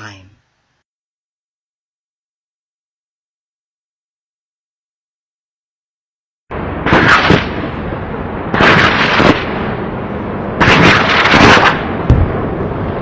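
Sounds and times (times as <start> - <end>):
loud rumbling bursts: 6.5 - 13.0
deep thump: 12.1 - 12.4.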